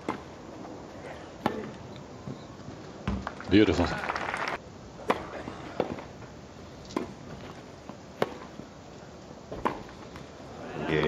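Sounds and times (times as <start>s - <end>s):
faint crowd background: 0.0s - 11.0s
tennis ball hits: 1.4s - 1.7s, 8.2s - 8.6s, 9.5s - 10.2s.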